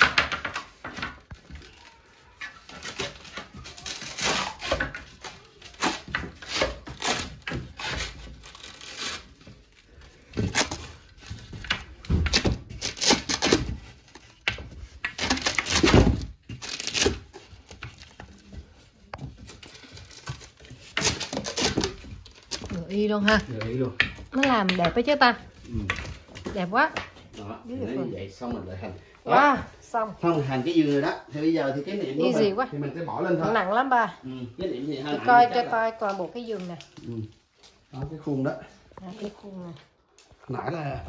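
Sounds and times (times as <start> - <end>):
wooden slats knocking and scraping: 0.0 - 1.6.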